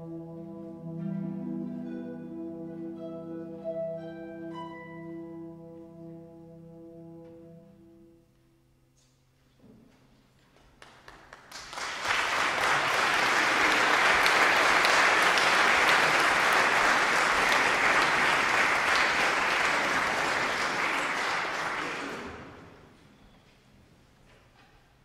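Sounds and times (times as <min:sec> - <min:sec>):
audience applause: 0:10.8 - 0:22.9.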